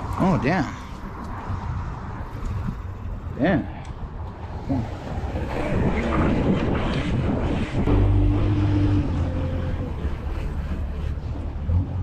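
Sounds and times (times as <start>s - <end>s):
street traffic rumble: 0.0s - 12.0s
wind buffeting microphone: 0.0s - 12.0s
low engine hum: 4.7s - 12.0s.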